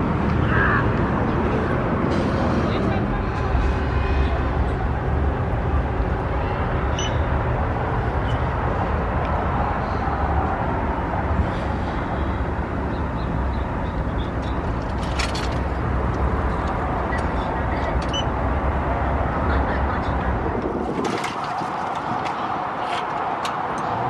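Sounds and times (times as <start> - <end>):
road traffic: 0.0 - 24.0
wind rumble on microphone: 18.5 - 24.0.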